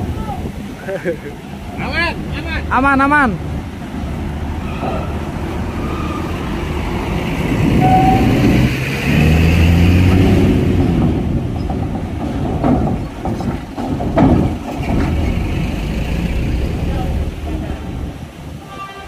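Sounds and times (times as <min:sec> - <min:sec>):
truck diesel engine: 0:00.6 - 0:18.3
wheels clanking over steel plates: 0:10.1 - 0:18.1.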